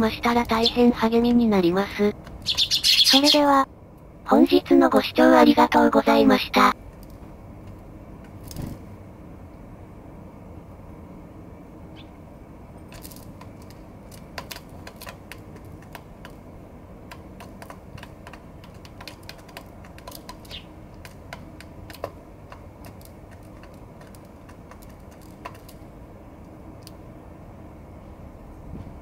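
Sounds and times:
low background noise: 0.0 - 29.0
birds pecking with beak taps: 12.8 - 27.0.

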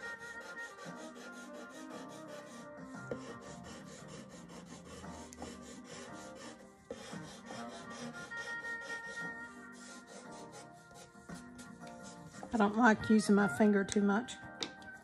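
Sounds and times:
pencil scratching on paper: 0.0 - 12.9
soft background music: 0.0 - 15.0.

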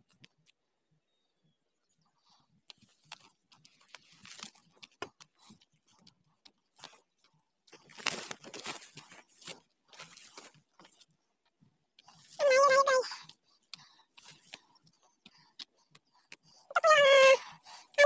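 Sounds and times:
footsteps through dry grass: 7.7 - 11.2.

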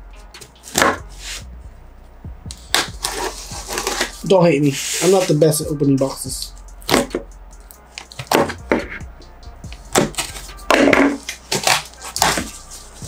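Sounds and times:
packing tape ripping: 2.5 - 4.2, 9.9 - 12.6.

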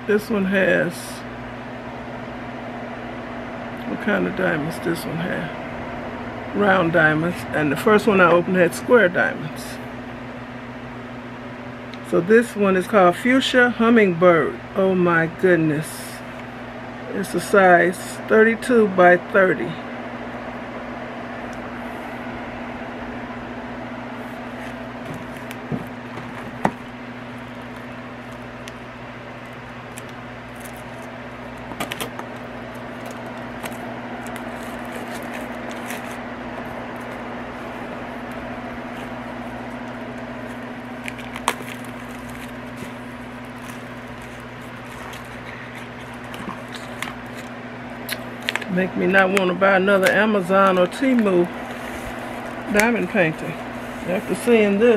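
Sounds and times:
appliance humming: 0.0 - 54.9
packaging clicking and crinkling: 29.4 - 36.2, 39.7 - 47.5, 48.1 - 48.7.

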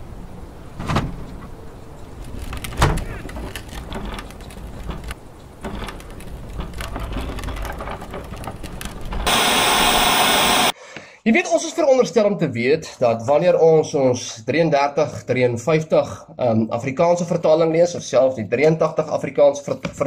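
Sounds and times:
light clicks and bumps: 0.8 - 9.3.

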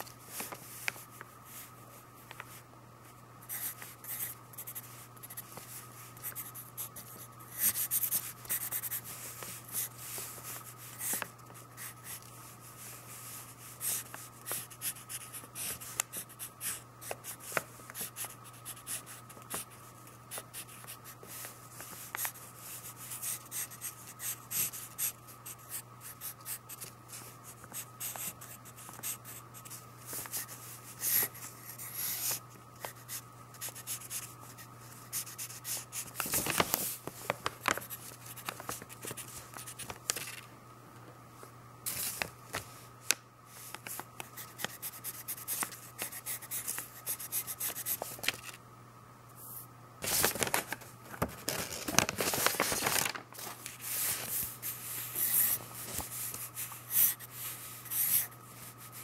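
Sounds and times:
faint steady hum: 0.0 - 59.0.

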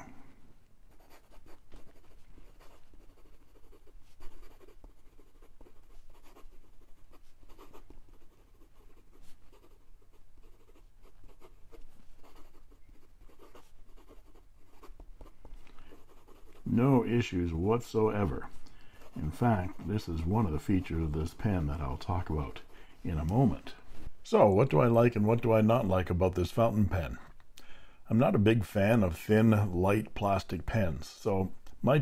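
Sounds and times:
pen nib writing on paper: 0.9 - 16.6.

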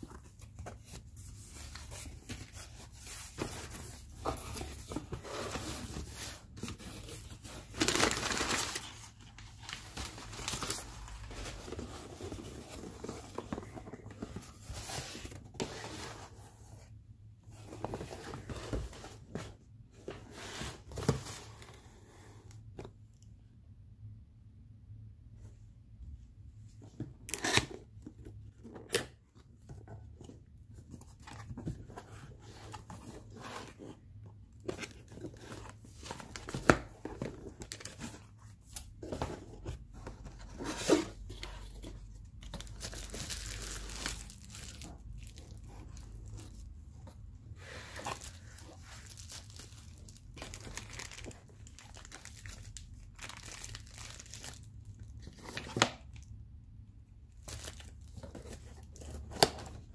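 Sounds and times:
plastic packaging crinkling: 42.5 - 46.5, 48.1 - 55.0.

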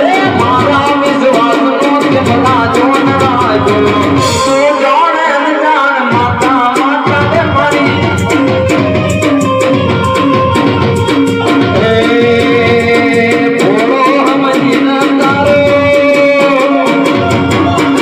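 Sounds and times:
fast rhythmic percussion: 0.0 - 18.0
held melody line: 0.0 - 18.0.

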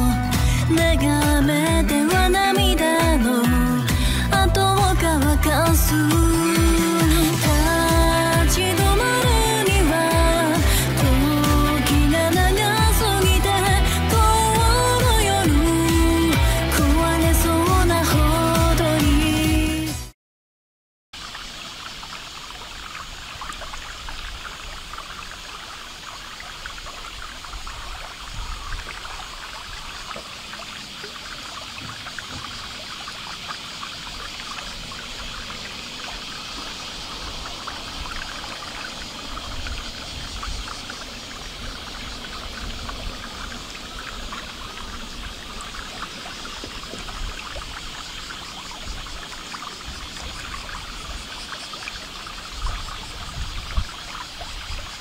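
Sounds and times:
trickle of running water: 0.0 - 19.3, 21.2 - 55.0
wind rumble on microphone: 26.7 - 30.2, 52.2 - 55.0.

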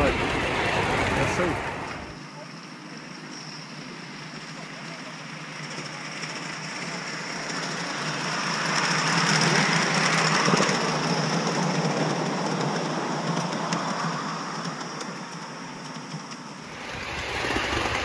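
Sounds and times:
model steam locomotive running past: 0.0 - 18.0.

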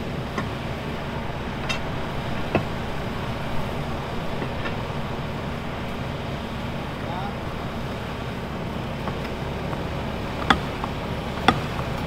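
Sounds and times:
diesel engine idling: 0.0 - 12.0
sharp knocks: 10.4 - 12.0.

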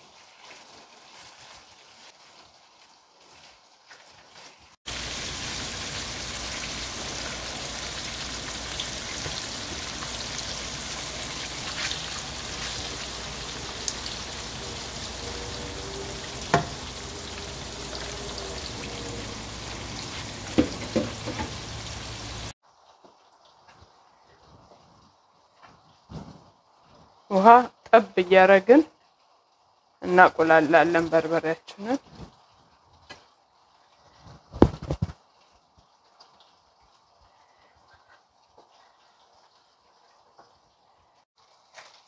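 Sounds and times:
fish sizzling in oil: 0.0 - 24.2
spatula tapping pan: 16.4 - 16.8, 20.4 - 21.6.

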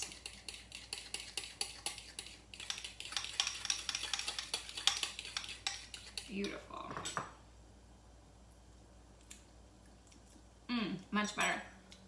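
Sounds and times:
spoon scraping a bowl: 0.0 - 6.7.

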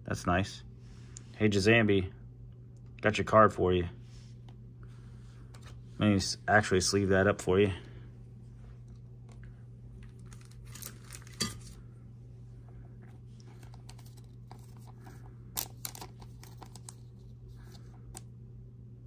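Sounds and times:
low hum: 0.0 - 19.0
plastic sleeve crinkling: 10.0 - 11.8.

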